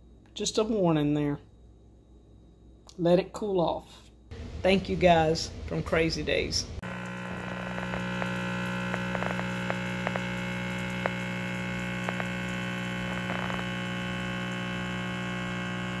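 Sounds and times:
small pump humming: 0:06.8 - 0:16.0.

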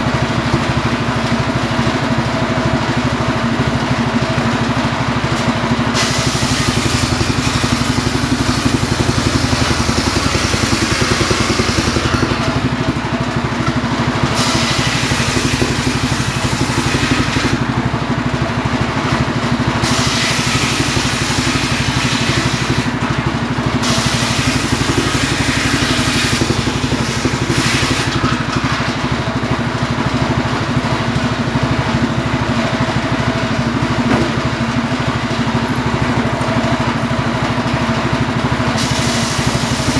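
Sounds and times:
saw blade rasping through logs: 0:06.0 - 0:13.0, 0:13.6 - 0:17.7, 0:19.8 - 0:23.0, 0:23.8 - 0:29.1, 0:38.8 - 0:39.9
saw engine hum: 0:06.0 - 0:18.1, 0:19.8 - 0:39.9.

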